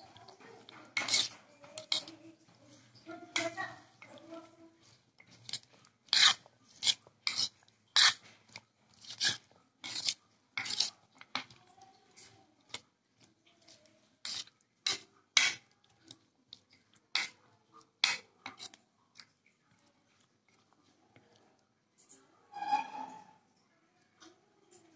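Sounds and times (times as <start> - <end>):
metal spoon scraping a bowl: 0.6 - 2.2, 5.2 - 11.6, 14.2 - 15.7, 17.1 - 17.4, 18.0 - 18.8, 22.5 - 23.4.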